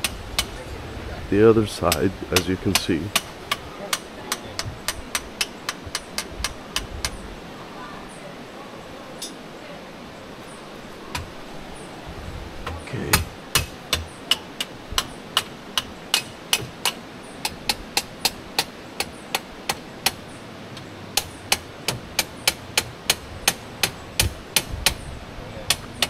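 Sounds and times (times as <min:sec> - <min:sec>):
hammer striking with ringing blows: 0:01.8 - 0:07.2, 0:12.7 - 0:20.2.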